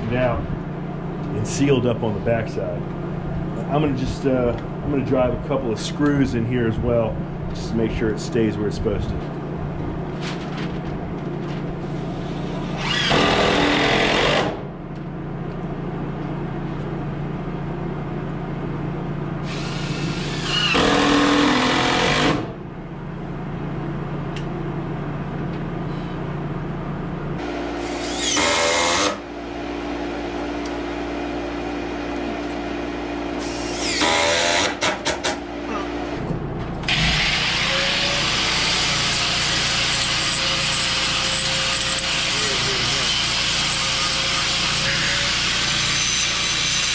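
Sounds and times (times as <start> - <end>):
steady low hum: 0.0 - 12.8
power drill driving a screw: 12.7 - 14.6, 19.5 - 22.4, 36.9 - 46.9.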